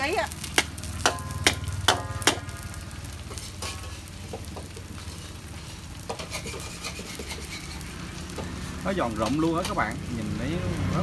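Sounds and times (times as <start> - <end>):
batter sizzling in pans: 0.0 - 11.0
metal utensil knocking on pan: 0.5 - 2.5
utensil tapping and scraping: 3.3 - 10.0.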